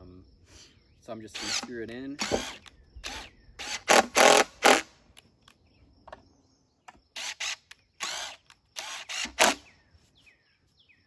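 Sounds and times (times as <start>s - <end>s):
cordless drill driving screws into wood: 1.3s - 4.9s, 7.1s - 9.7s.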